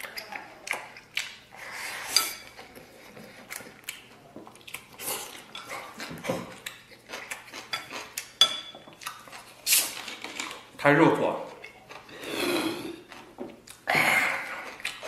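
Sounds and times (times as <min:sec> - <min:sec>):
wet chewing smacks: 0:00.0 - 0:01.9, 0:02.5 - 0:10.7, 0:13.0 - 0:15.0
person slurping noodles: 0:12.0 - 0:13.2.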